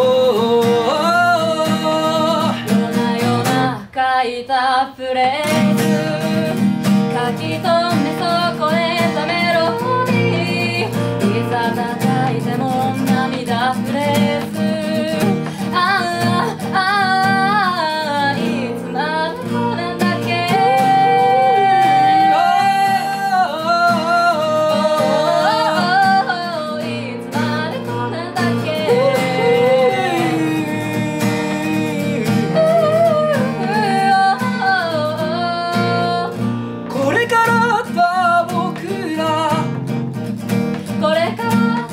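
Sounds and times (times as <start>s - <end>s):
acoustic guitar: 0.0s - 41.9s
woman singing: 0.0s - 41.9s.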